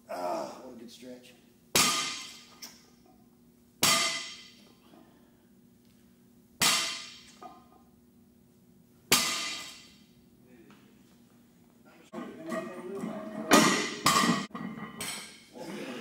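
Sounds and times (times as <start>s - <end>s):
barbell clanging on platform: 12.1s - 15.4s.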